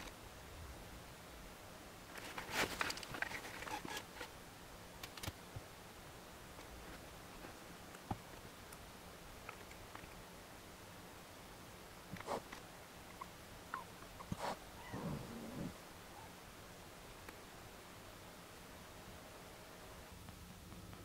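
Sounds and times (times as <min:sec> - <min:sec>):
faint rustling: 0:14.2 - 0:15.8.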